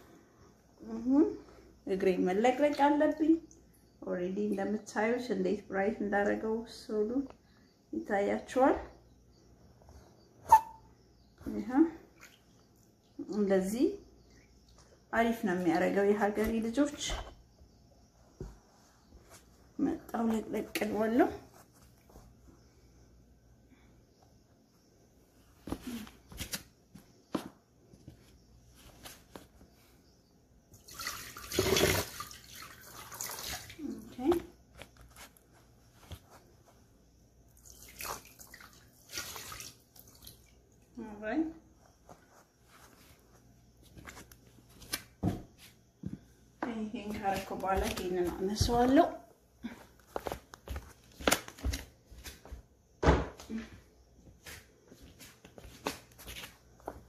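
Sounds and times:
water splashing in a basin: 0:12.0 - 0:12.6, 0:30.7 - 0:34.1, 0:37.6 - 0:40.9.

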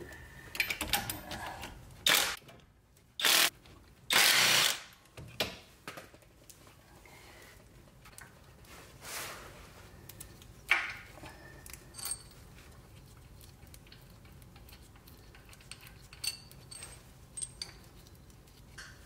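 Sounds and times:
metal clinks and taps: 0:13.7 - 0:19.0.

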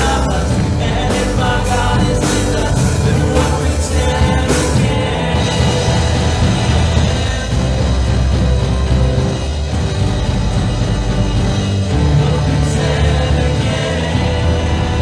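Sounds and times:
electric bass: 0:00.0 - 0:15.0
strummed acoustic guitars: 0:00.0 - 0:15.0.

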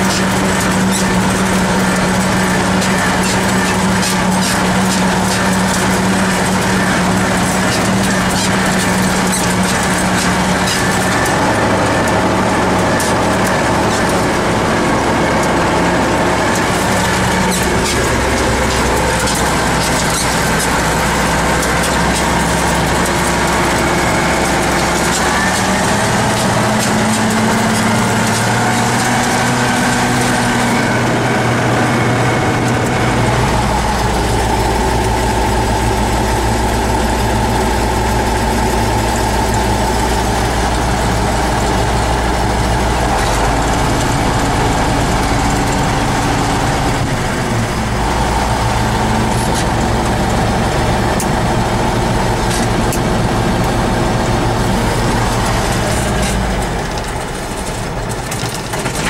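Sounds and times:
tractor diesel engine running: 0:00.0 - 0:59.0.

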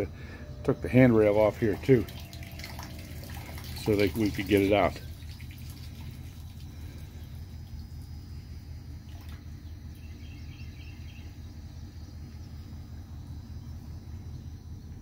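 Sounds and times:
engine idling: 0:00.0 - 0:15.0
faint bird chirps: 0:06.6 - 0:15.0.

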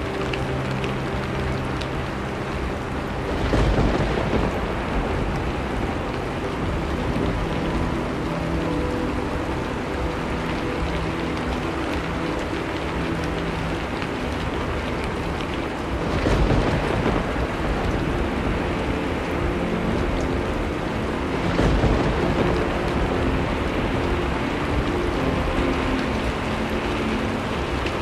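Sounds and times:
steady rain: 0:00.0 - 0:28.0
distant thunder rumbling: 0:03.0 - 0:09.6, 0:14.4 - 0:28.0.

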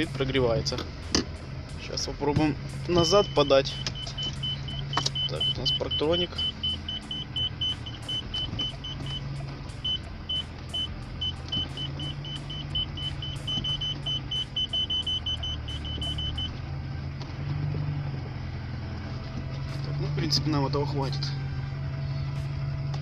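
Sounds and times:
car engine idling: 0:00.0 - 0:23.0
parking sensor beeping: 0:02.8 - 0:16.6.

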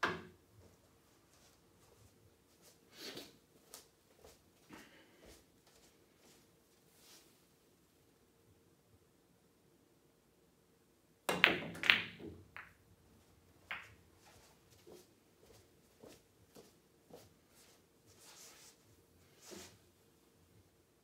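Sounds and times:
cue striking ball: 0:11.3 - 0:12.8
pool balls clacking: 0:11.3 - 0:12.8, 0:13.6 - 0:14.0.

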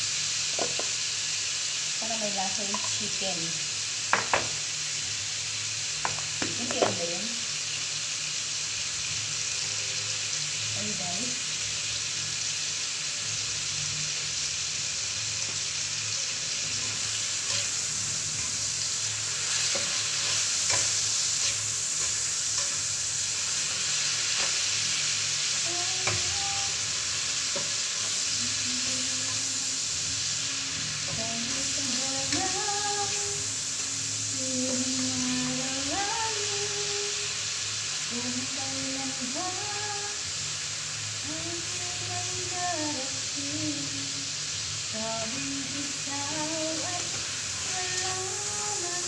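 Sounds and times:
food sizzling in oil: 0:00.0 - 0:49.0
spatula stirring pan: 0:16.7 - 0:26.4.

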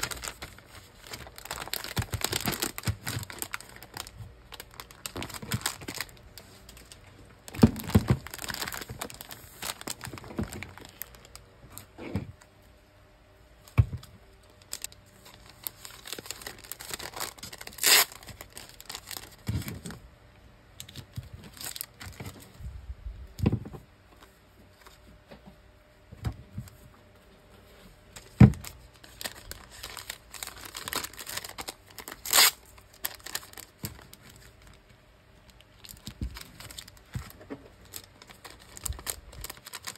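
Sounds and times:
cellophane bags crinkling: 0:00.0 - 0:12.0, 0:14.0 - 0:20.0, 0:20.8 - 0:22.5, 0:28.2 - 0:34.8, 0:35.5 - 0:39.9
adhesive strip peeling rustle: 0:16.8 - 0:18.3, 0:29.3 - 0:33.6.

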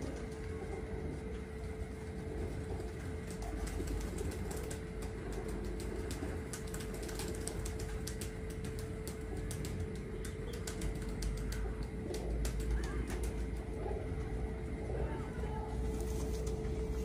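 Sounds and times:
pigeons cooing: 0:00.0 - 0:17.0
steady hum: 0:00.0 - 0:17.0
quick irregular clicks: 0:03.4 - 0:13.3.

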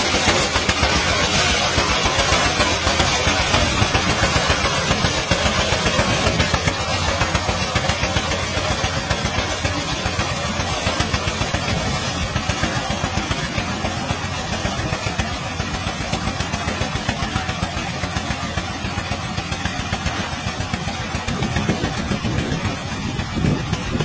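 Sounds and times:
small engine running: 0:00.0 - 0:24.0.

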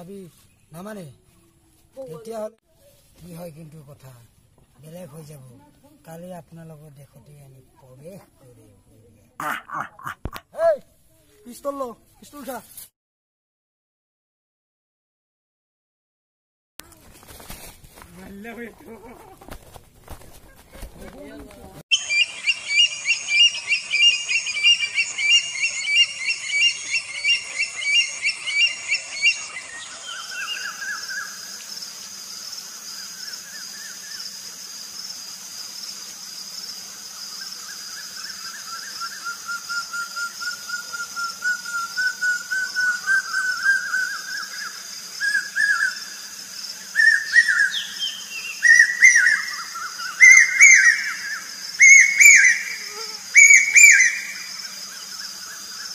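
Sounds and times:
birds chirping and whistling: 0:21.9 - 0:31.7, 0:37.8 - 0:46.2, 0:46.8 - 0:55.9.

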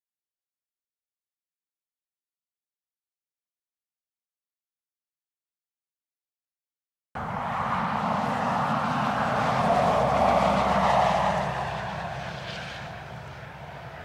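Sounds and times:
car driving past: 0:07.2 - 0:14.0.

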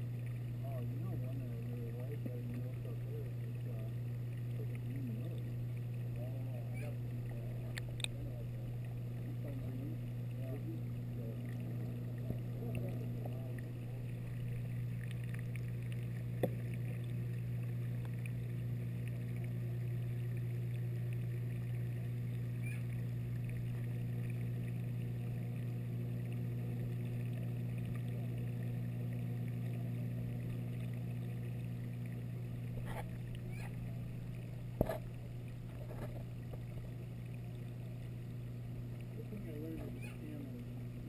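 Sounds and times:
aquarium water pumps humming: 0:00.0 - 0:41.0.

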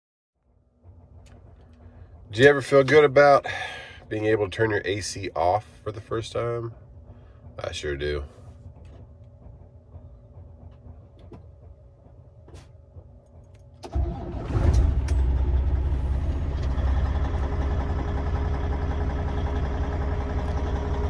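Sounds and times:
faint hum: 0:00.5 - 0:13.9
diesel engine cranking and idling: 0:00.5 - 0:21.0.

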